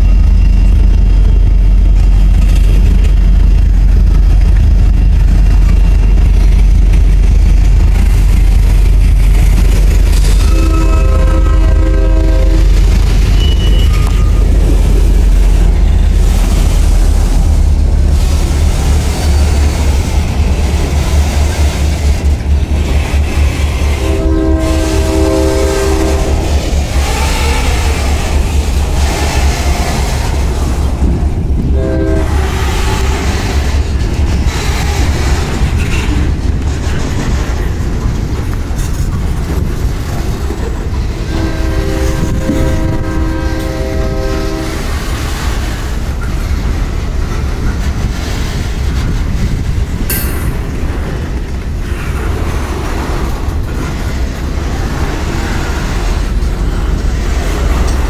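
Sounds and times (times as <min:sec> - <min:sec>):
train wheels rumbling on rail: 0:00.0 - 0:58.0
train horn blasts: 0:10.3 - 0:14.6, 0:23.9 - 0:27.7, 0:31.7 - 0:32.6, 0:41.2 - 0:44.9.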